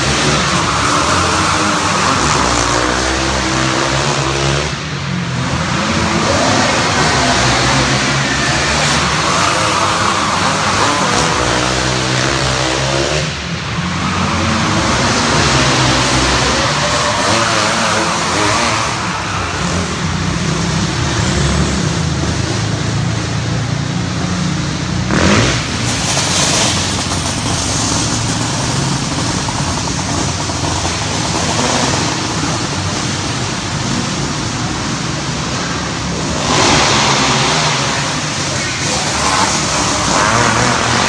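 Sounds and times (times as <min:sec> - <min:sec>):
race car engines droning: 0:00.0 - 0:41.0.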